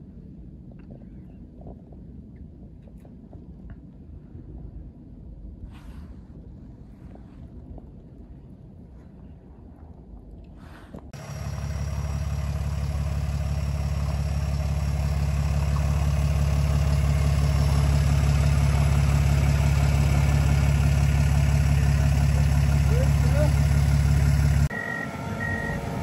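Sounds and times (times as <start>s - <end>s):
diesel engine idling: 11.2s - 26.0s.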